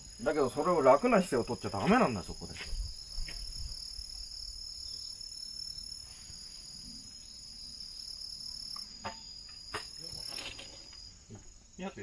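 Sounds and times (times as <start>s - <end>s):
insects singing: 0.0s - 12.0s.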